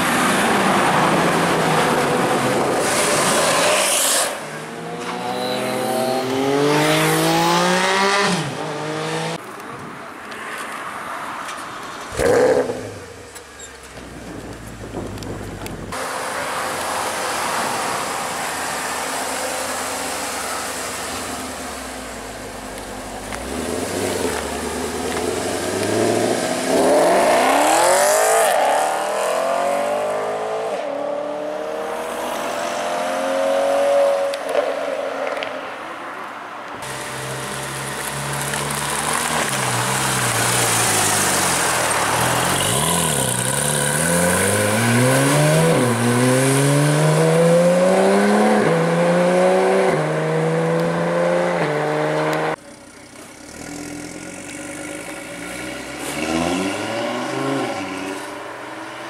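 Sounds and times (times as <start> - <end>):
car revving: 14.8 - 34.4, 36.8 - 59.0.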